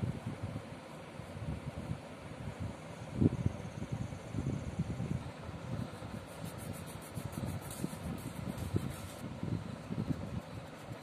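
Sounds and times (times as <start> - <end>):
pencil shading on paper: 6.1 - 9.2.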